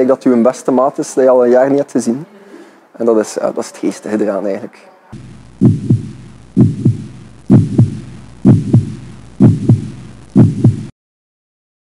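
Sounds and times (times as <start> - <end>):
heartbeat thumps: 5.2 - 10.9
low hum: 5.2 - 10.9.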